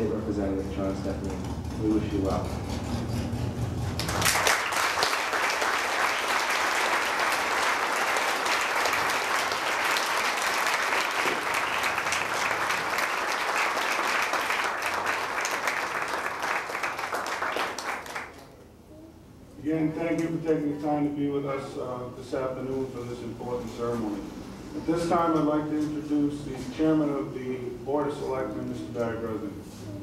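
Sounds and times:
audience applauding: 0:03.9 - 0:18.5.

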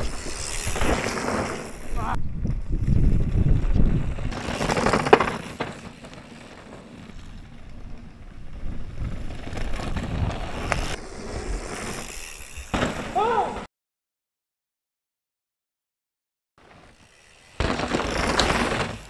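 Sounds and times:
bike rattling and clicking: 0:00.0 - 0:13.3, 0:16.6 - 0:19.0
bike tyres crunching on gravel: 0:00.0 - 0:13.4, 0:16.6 - 0:19.0.

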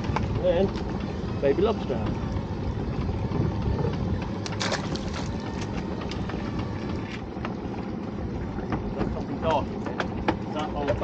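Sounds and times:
wind on microphone: 0:01.8 - 0:07.1
water slapping against boat hull: 0:03.9 - 0:07.8, 0:08.4 - 0:11.0.

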